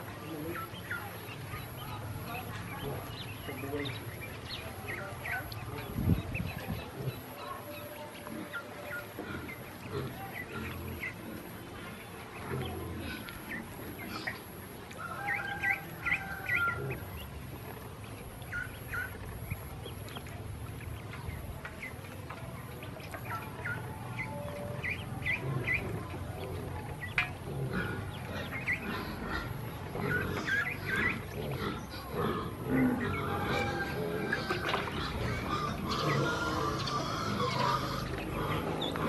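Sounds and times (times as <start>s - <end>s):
ducklings peeping: 0.0s - 39.0s.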